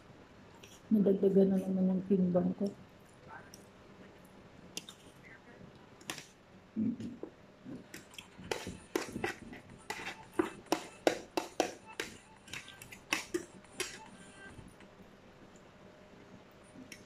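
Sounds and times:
cutlery scraping against plates: 8.4 - 11.0.

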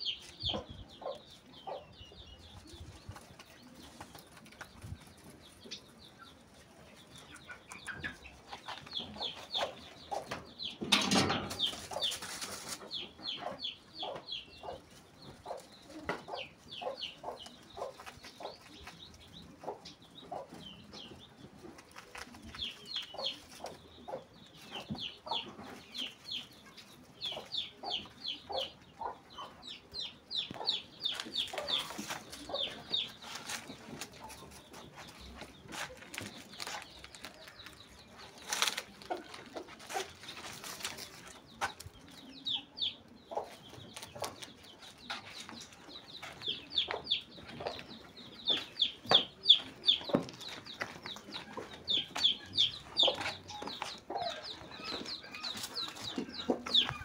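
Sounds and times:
chickens clucking: 0.0 - 57.0
rustles and light knocks: 31.1 - 42.1.

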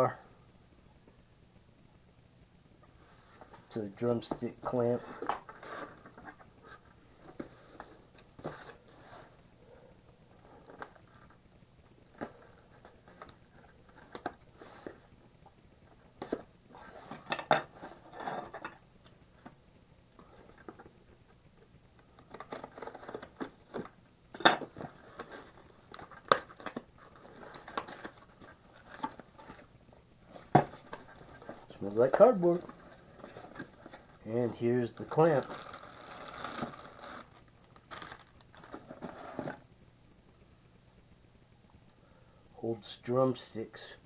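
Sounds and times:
cardboard box rustling and scraping: 38.7 - 39.6.

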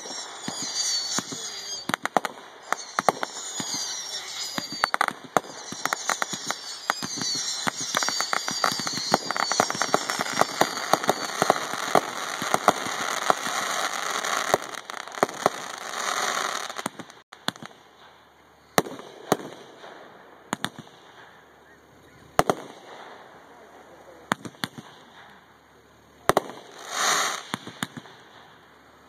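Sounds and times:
high wavering whistle: 0.0 - 14.6
firework bangs: 0.0 - 18.2, 18.8 - 21.3, 22.4 - 23.4, 26.2 - 28.6
fireworks crackling pops: 0.0 - 21.4, 22.3 - 23.2, 24.3 - 25.5, 26.2 - 28.8.

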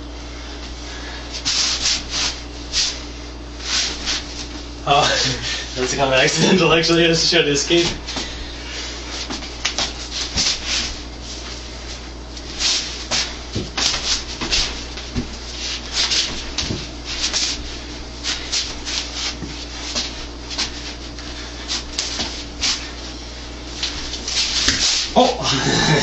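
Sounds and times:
steady low hum: 0.0 - 26.0
sleeves brushing and rubbing: 1.4 - 3.0, 3.6 - 4.6, 9.1 - 25.2.

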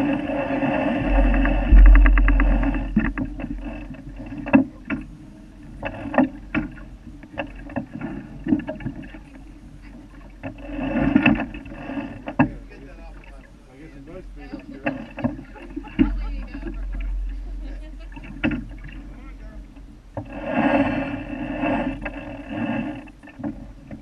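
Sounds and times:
heavy low rumble: 0.0 - 7.0, 15.7 - 22.2
boat knocks and clicks: 0.0 - 13.5, 14.1 - 24.0
wind and water rushing along hull: 0.0 - 24.0.

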